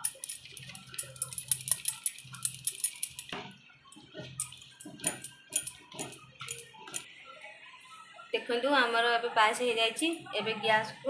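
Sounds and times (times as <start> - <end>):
ladle stirring and splashing liquid: 0.0 - 7.1.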